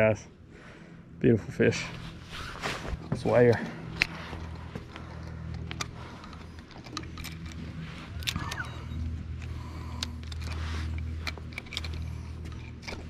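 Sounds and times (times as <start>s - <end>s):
low motor hum: 0.0s - 13.0s
gear clicking and knocking: 3.1s - 13.0s.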